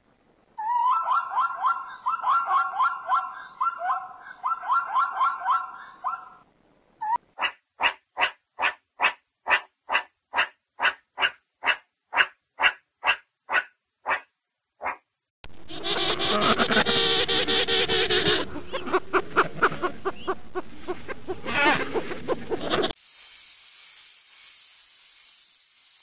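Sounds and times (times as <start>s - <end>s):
zebra barking yelps: 0.6s - 6.4s, 7.0s - 23.0s
meerkat chirping barks: 0.7s - 6.4s, 7.0s - 15.0s, 15.7s - 22.9s
penguin colony calling: 15.5s - 23.0s.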